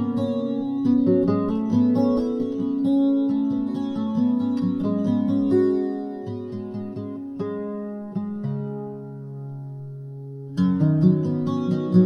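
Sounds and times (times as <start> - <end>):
acoustic guitar notes: 0.0 - 12.0.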